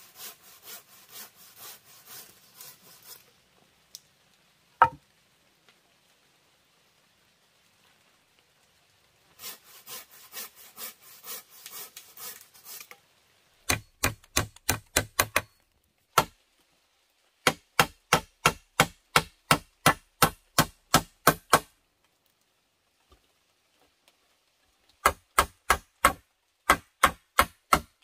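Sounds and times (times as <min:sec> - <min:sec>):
handsaw cutting wood: 0:00.0 - 0:03.3, 0:09.4 - 0:13.0
sharp wooden knocks: 0:04.8 - 0:05.0, 0:13.7 - 0:15.6, 0:17.5 - 0:21.7, 0:25.0 - 0:27.9.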